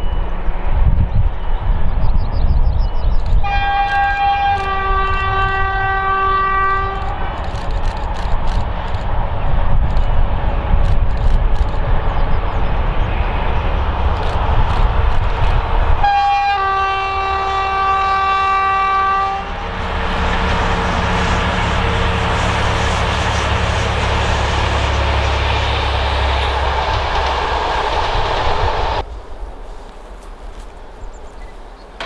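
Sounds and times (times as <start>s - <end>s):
train rumbling: 0.0s - 32.0s
locomotive horn: 3.4s - 7.4s, 16.0s - 25.4s
faint outdoor ambience: 6.0s - 32.0s.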